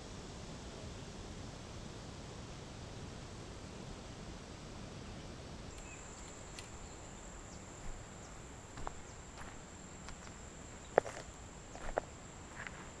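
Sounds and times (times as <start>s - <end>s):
faint outdoor hiss: 0.0s - 13.0s
insect trilling: 5.7s - 13.0s
footsteps on gravel: 7.7s - 13.0s.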